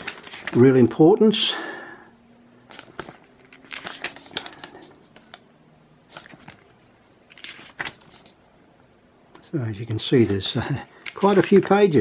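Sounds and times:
paper pages rustling: 0.0s - 0.8s, 2.7s - 5.4s, 6.1s - 8.4s, 9.4s - 12.0s.

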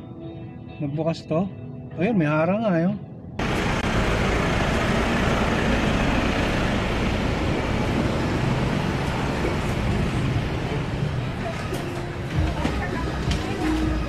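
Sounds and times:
traffic with low rumble: 3.0s - 14.0s.

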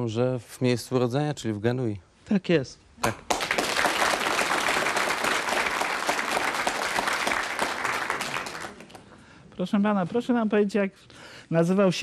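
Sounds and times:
audience applauding: 3.3s - 9.1s.

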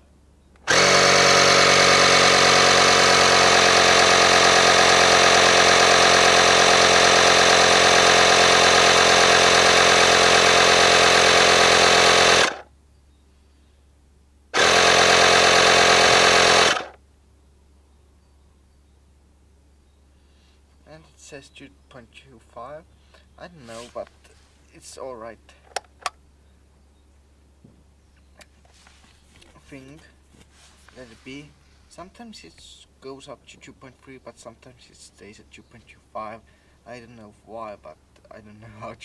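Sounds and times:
tyre compressor running: 0.6s - 12.6s, 14.6s - 17.0s.

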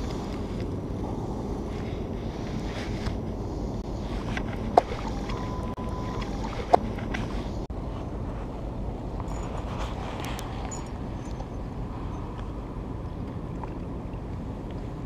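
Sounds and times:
water noise: 0.0s - 15.0s.

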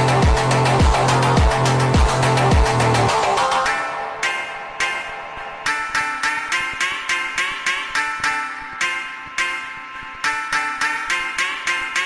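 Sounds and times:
heavy electronic beat: 0.0s - 11.8s
separate pitched notes: 0.0s - 12.0s.

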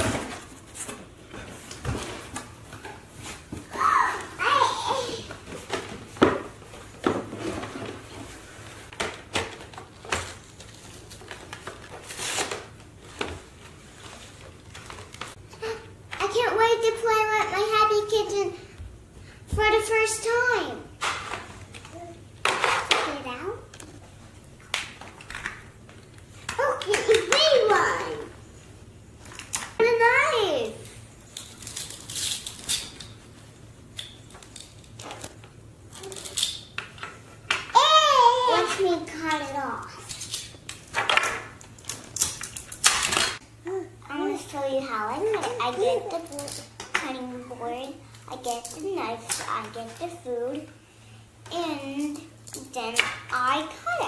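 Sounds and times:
plastic toys clicking and scraping: 31.3s - 33.2s, 34.0s - 37.8s, 38.4s - 43.4s, 45.2s - 47.1s, 47.8s - 50.2s.

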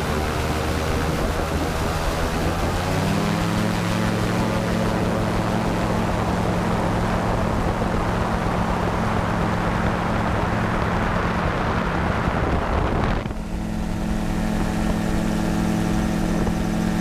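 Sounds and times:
gyrocopter engine and propeller: 0.0s - 17.0s
wind noise: 0.0s - 17.0s.

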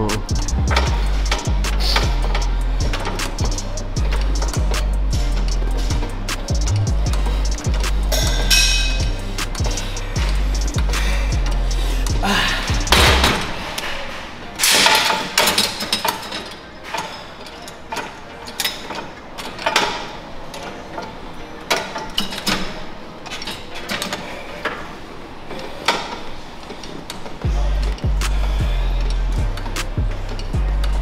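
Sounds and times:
weight machine metallic clanks: 6.5s - 10.4s, 12.8s - 28.2s.

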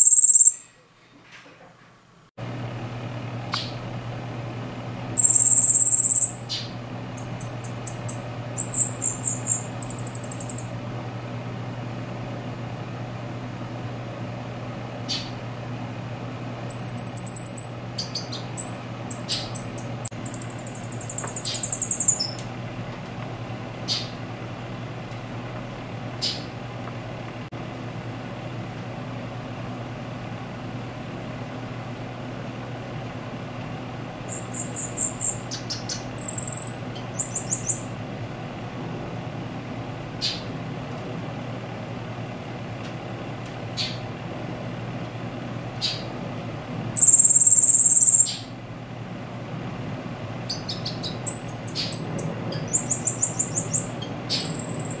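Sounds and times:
bird singing high phrases: 0.0s - 0.8s, 3.6s - 3.8s, 5.2s - 10.8s, 15.1s - 15.4s, 16.7s - 22.5s, 23.9s - 24.2s, 34.3s - 38.0s, 43.8s - 44.0s, 47.0s - 48.6s, 50.5s - 55.0s
steady low hum: 0.0s - 55.0s.

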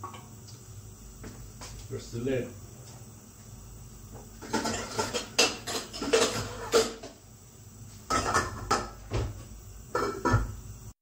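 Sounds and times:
metal pots and lids clattering: 4.4s - 7.1s, 8.1s - 9.0s, 9.9s - 10.6s.

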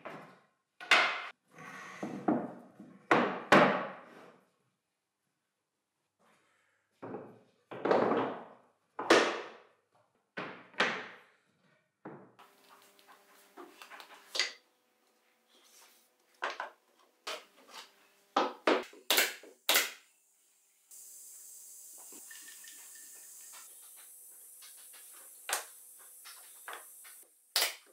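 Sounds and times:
steady hiss: 19.6s - 27.5s.

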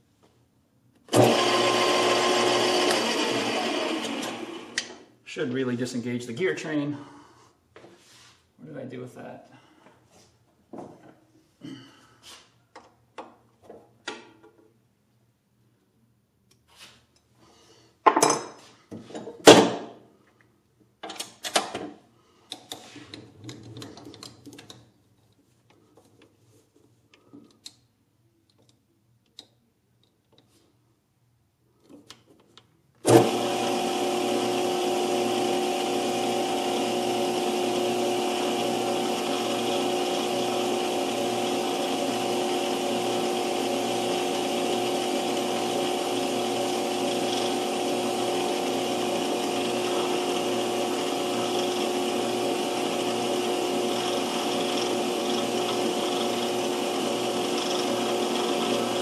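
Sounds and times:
metal lathe whining: 1.1s - 4.9s, 33.1s - 59.0s.

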